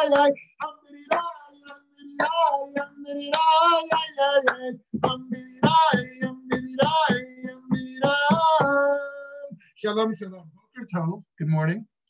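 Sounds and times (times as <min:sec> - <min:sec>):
man singing: 0:00.0 - 0:09.8.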